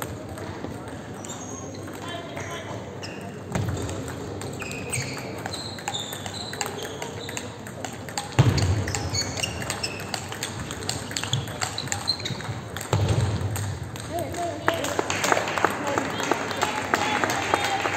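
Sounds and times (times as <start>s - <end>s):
shoes squeaking on sports floor: 1.2s - 1.9s, 3.0s - 3.6s, 4.5s - 7.5s, 8.4s - 13.0s.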